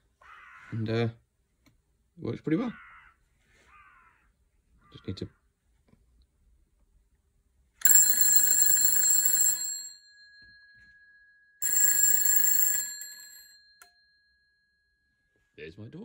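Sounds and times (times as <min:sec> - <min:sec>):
telephone bell ringing: 0:07.8 - 0:15.5.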